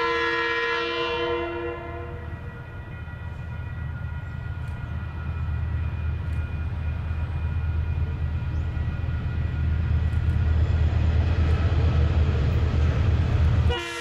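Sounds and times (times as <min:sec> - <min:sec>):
diesel locomotive horn: 0:00.0 - 0:03.0, 0:13.5 - 0:14.0
freight train rumble: 0:00.0 - 0:14.0.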